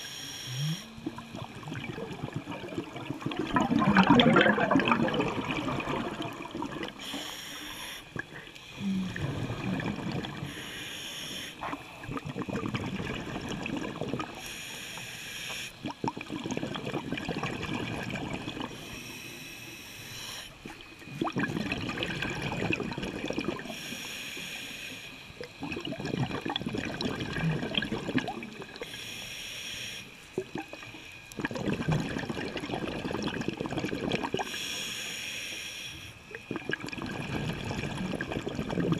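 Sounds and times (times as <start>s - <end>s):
diver breathing through regulator: 0.0s - 1.3s, 7.0s - 9.7s, 10.3s - 11.7s, 18.7s - 20.8s, 23.6s - 25.2s, 28.8s - 30.2s, 34.4s - 36.2s
exhaust bubbles burbling: 0.6s - 7.0s, 8.1s - 10.5s, 11.6s - 14.4s, 15.8s - 18.8s, 20.9s - 23.7s, 25.4s - 28.8s, 30.4s - 34.5s, 36.3s - 38.9s.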